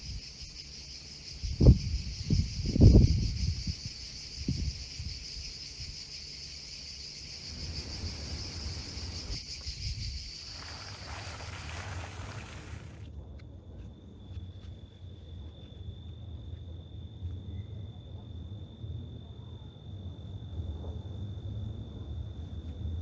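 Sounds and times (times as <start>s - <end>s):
insects chirring: 0.0s - 13.1s.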